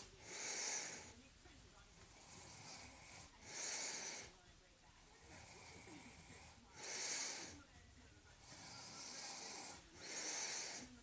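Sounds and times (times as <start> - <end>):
person breathing: 0.0 - 1.3, 2.0 - 4.4, 5.2 - 7.7, 8.4 - 11.0.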